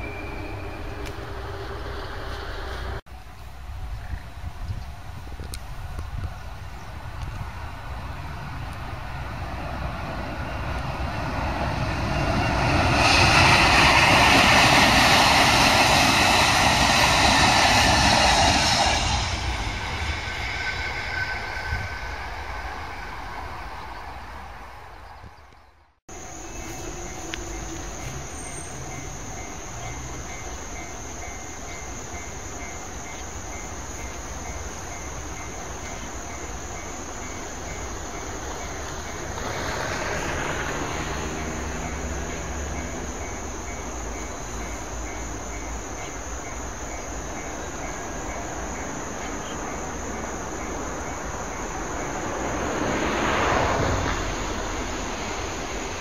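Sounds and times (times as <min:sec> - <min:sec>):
high insect-like whine: 0:00.0 - 0:56.0
train passing: 0:00.0 - 0:56.0
steady hiss: 0:26.1 - 0:53.1.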